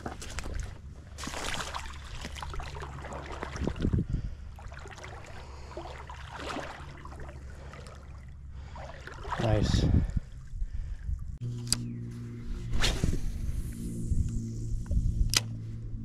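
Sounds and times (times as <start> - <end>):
water splashing around wading legs: 0.0 - 9.6
steady low rumble: 6.8 - 16.0.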